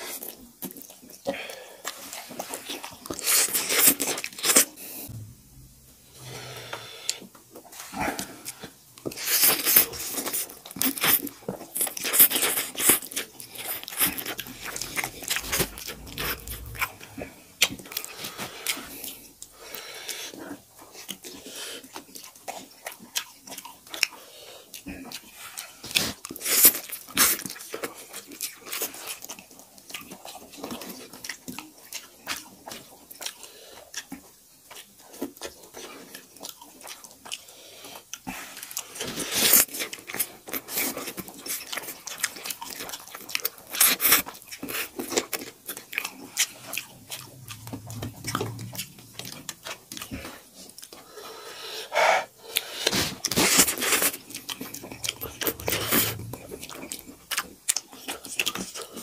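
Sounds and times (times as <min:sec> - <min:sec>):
people chewing: 0:06.2 - 0:59.0
slurping noodles: 0:43.7 - 0:59.0.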